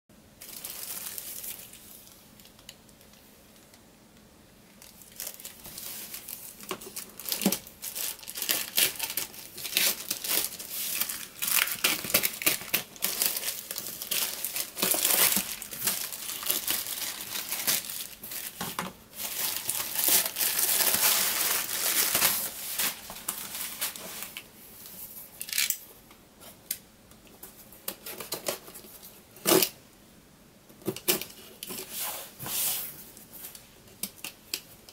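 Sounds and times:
plastic wrapping crinkling: 0.4s - 3.2s, 4.7s - 24.5s.

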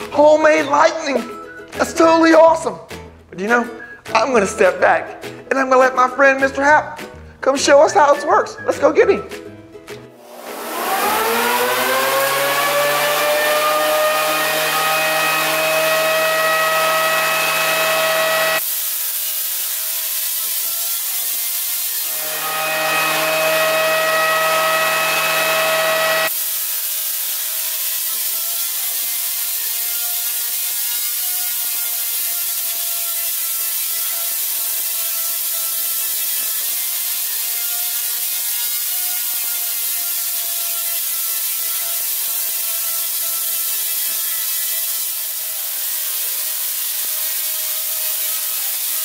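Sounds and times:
spark gap high whine: 10.2s - 49.0s
tesla coil sparks buzzing: 10.2s - 49.0s.

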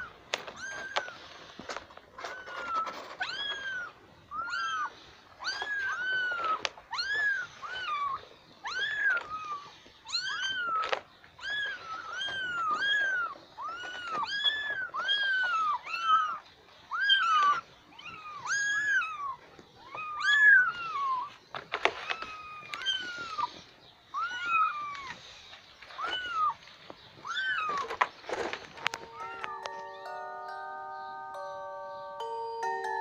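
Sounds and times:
kittens mewing: 2.1s - 25.2s, 27.2s - 28.0s.

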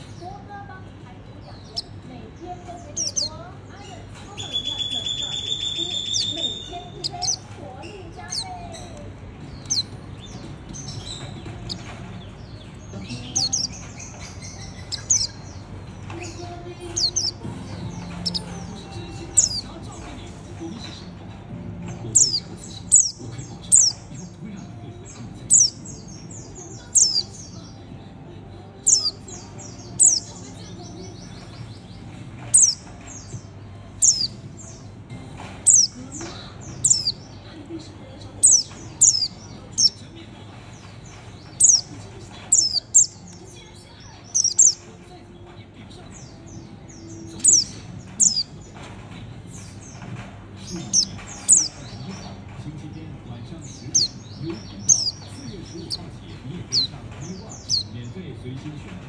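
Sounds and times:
bird chattering: 0.0s - 58.0s
bird singing high sharp notes: 2.8s - 3.4s, 4.4s - 7.5s, 9.5s - 15.6s, 16.2s - 19.7s, 22.1s - 24.3s, 25.5s - 27.6s, 28.8s - 30.4s, 32.5s - 33.4s, 34.0s - 34.8s, 35.7s - 36.0s, 36.8s - 37.3s, 38.4s - 40.0s, 41.6s - 41.9s, 42.5s - 43.2s, 44.2s - 44.8s, 46.9s - 48.5s, 50.9s - 51.8s, 53.7s - 56.0s.

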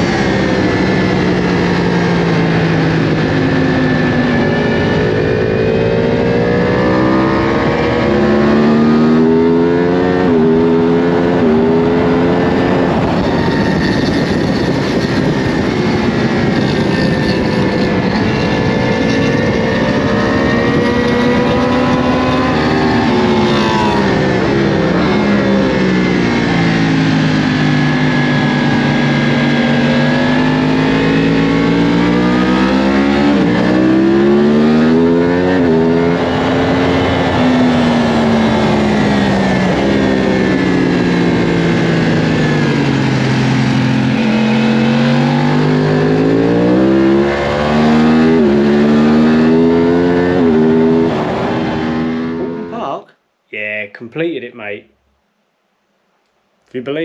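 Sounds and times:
motorcycle engine revving: 0.0s - 52.9s
wind rush: 10.2s - 27.5s.

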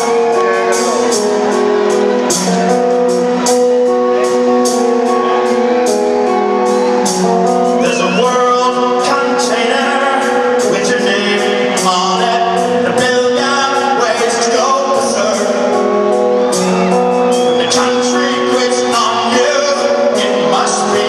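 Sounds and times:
electric guitar sustained notes: 0.0s - 21.0s
man singing: 7.6s - 16.7s, 17.3s - 21.0s.

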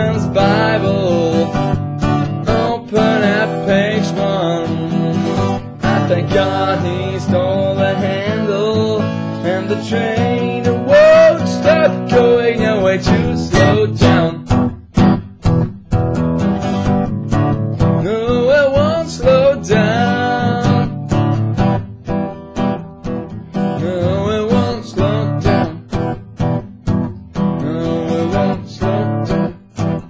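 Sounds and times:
wordless singing: 0.0s - 1.7s, 2.3s - 14.5s, 18.0s - 20.9s, 23.8s - 25.8s, 27.6s - 29.5s
acoustic guitar strumming: 0.0s - 30.0s.

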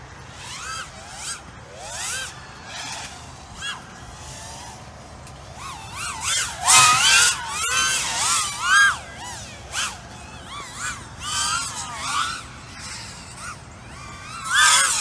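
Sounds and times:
quadcopter motors whining: 0.0s - 15.0s.

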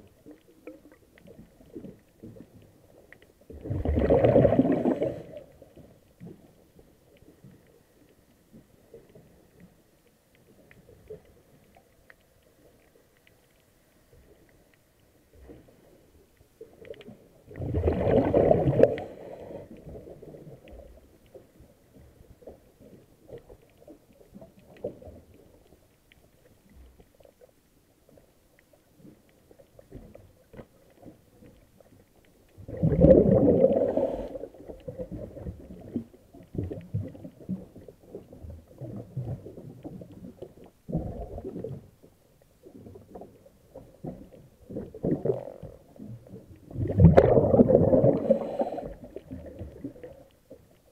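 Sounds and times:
faint underwater crackling: 0.0s - 50.9s
underwater breath bubbles: 3.5s - 5.9s, 17.5s - 20.6s, 32.6s - 36.0s, 44.7s - 50.3s.

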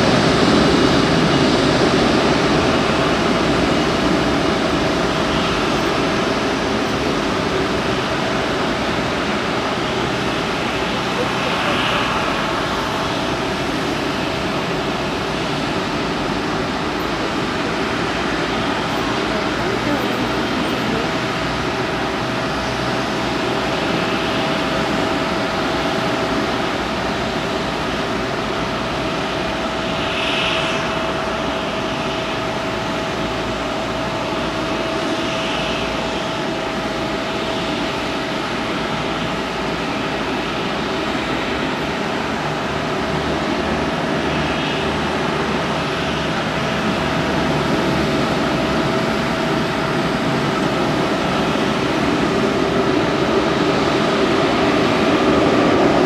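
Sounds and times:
jet airliner taxiing: 0.0s - 56.0s.

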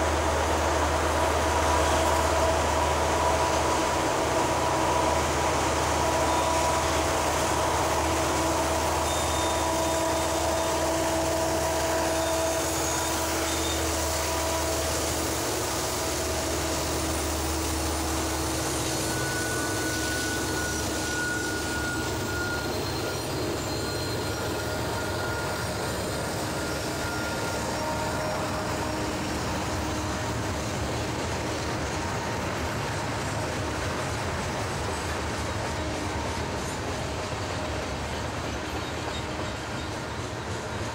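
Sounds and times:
freight cars rolling on rails: 0.0s - 40.9s
locomotive engine rumble: 0.0s - 40.9s
thin wheel squealing: 8.0s - 30.7s.

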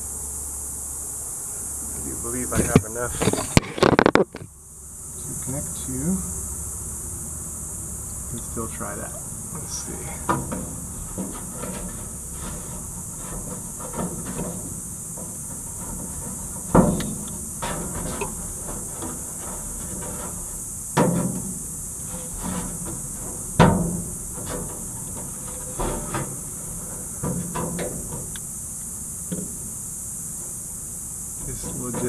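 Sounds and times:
steady high hiss: 0.0s - 32.0s
sharp knocks on sheet metal: 10.2s - 28.4s.

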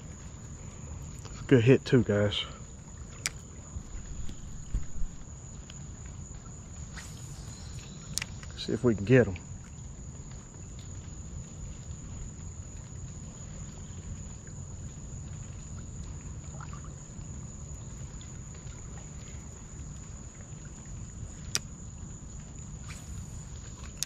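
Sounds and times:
steady low rumble: 0.0s - 10.1s
high insect drone: 0.0s - 24.0s.

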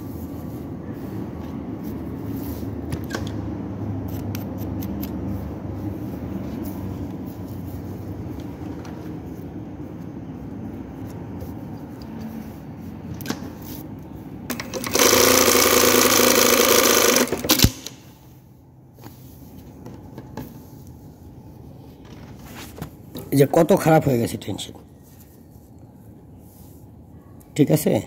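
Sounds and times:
sewing machine stitching: 14.5s - 17.8s.

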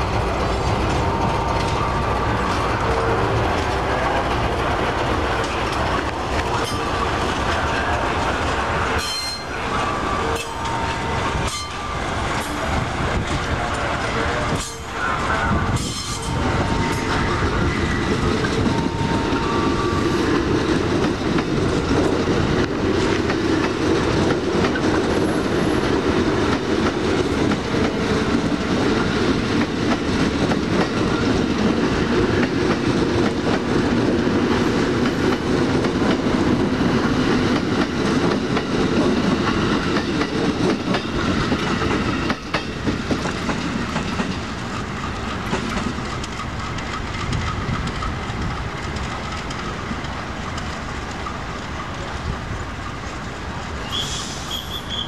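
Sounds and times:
train wheels clacking over rail joints: 0.0s - 15.0s, 15.7s - 55.0s.

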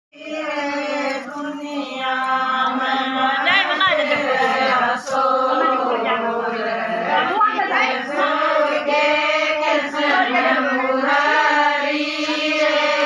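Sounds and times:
women singing devotional song: 0.2s - 13.0s.

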